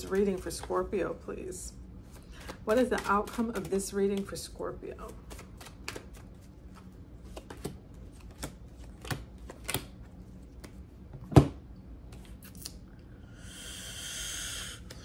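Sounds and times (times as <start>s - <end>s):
cards shuffling clicks: 5.0s - 10.8s.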